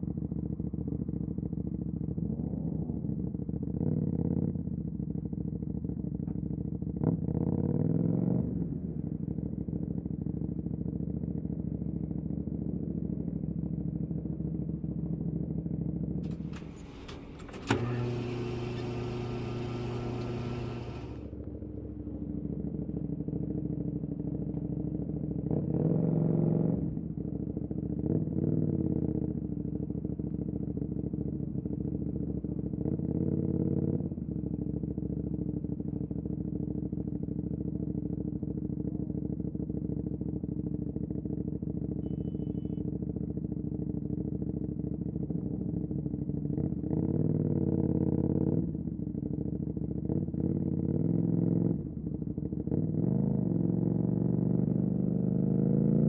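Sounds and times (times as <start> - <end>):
motorcycle engine revving: 16.2 - 22.8, 49.6 - 56.0.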